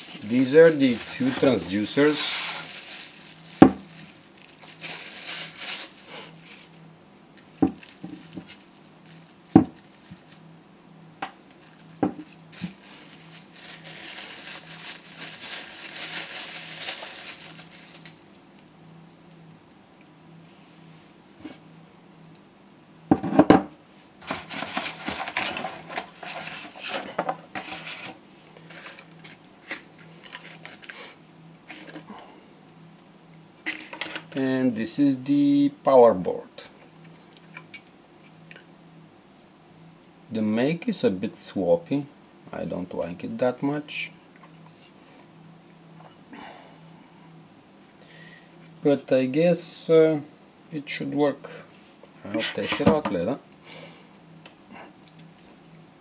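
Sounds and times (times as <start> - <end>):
plastic wrapping crinkling: 0.0 - 10.5, 11.3 - 19.8, 24.2 - 32.1
hard parts knocking on table: 9.5 - 9.8, 23.1 - 23.7.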